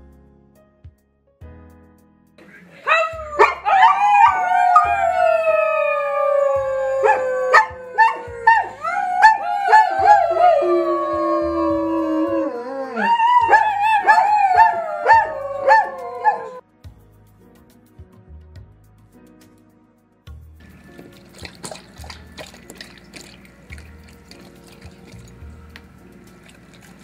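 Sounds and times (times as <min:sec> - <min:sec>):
dog yipping: 0:02.8 - 0:04.9, 0:07.0 - 0:10.2, 0:13.0 - 0:16.6
dog howling: 0:02.8 - 0:16.6.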